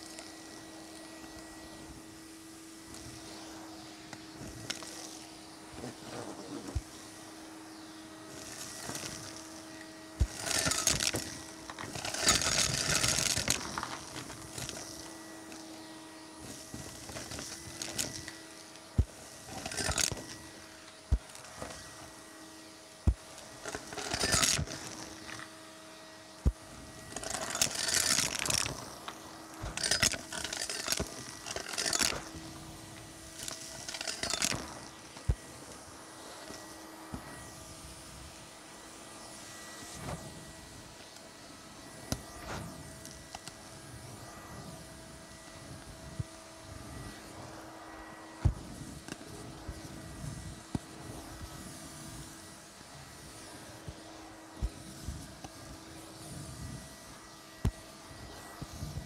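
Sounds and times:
vacuum cleaner motor hum: 0.0s - 59.0s
debris rattling up hose: 8.3s - 15.7s, 16.4s - 22.1s, 23.1s - 25.5s, 26.4s - 35.3s.

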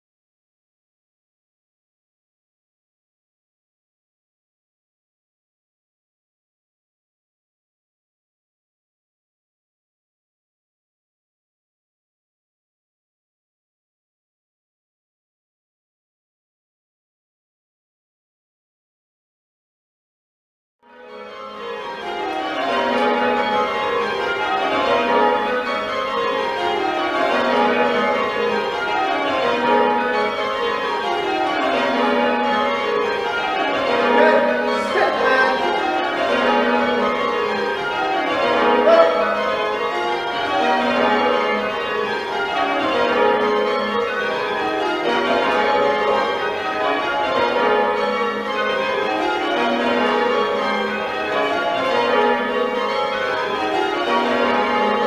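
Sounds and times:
church bells change ringing: 20.8s - 55.0s.

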